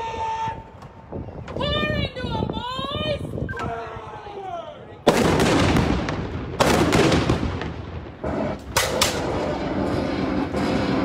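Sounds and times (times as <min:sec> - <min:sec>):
cannon firing with rumbling echo: 0:05.1 - 0:11.0.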